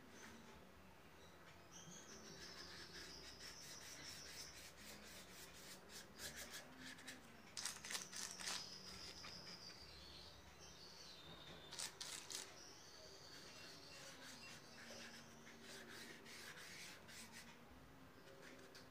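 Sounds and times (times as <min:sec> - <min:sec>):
paintbrush scrubbing on board: 0:02.2 - 0:09.2, 0:13.4 - 0:17.5.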